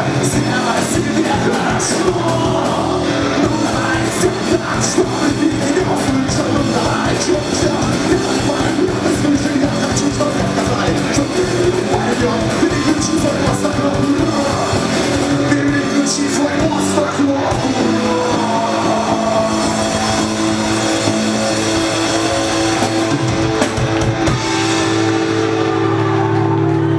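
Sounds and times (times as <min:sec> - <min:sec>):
distorted electric guitars: 0:00.0 - 0:26.9
drum kit: 0:00.0 - 0:26.9.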